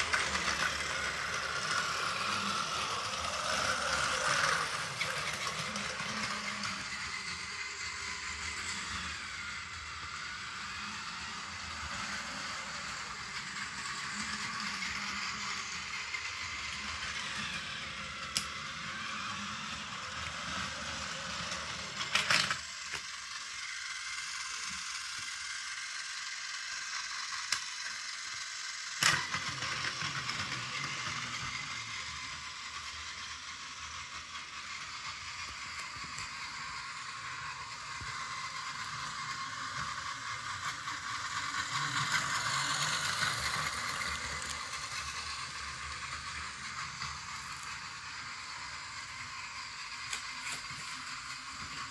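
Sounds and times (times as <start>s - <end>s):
toy train motor whirring: 0.0s - 51.9s
toy train wheels rattling: 0.0s - 51.9s.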